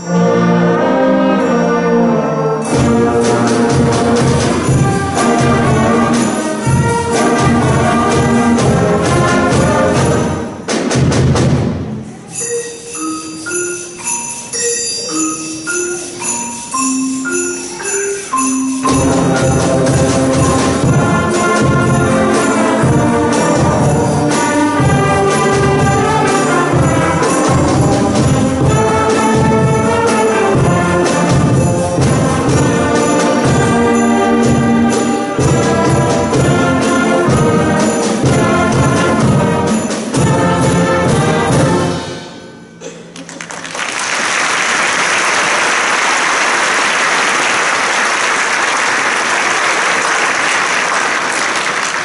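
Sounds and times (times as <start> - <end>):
concert band playing: 0.0 - 42.6
audience applauding: 43.2 - 52.0.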